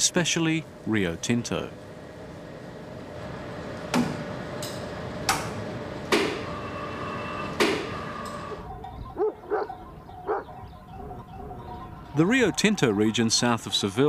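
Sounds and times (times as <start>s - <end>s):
dog barking: 9.2s - 11.2s.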